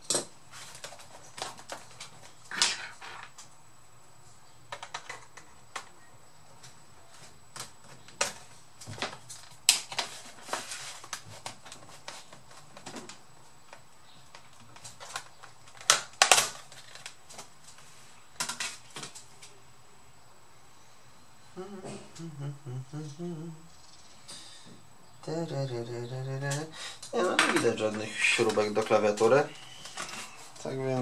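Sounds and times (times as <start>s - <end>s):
plastic cover snapping free: 14.3s - 17.5s.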